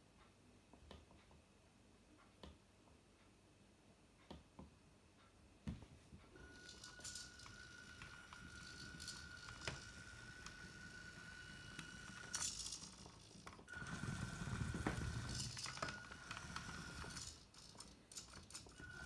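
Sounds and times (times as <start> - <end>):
electric motor whine with crackling: 6.4 - 17.4.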